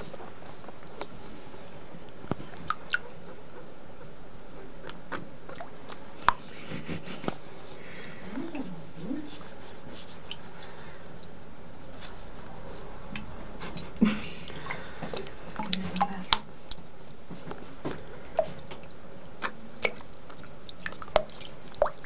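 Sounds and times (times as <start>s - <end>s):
water splashing in a sink: 19.7s - 22.0s.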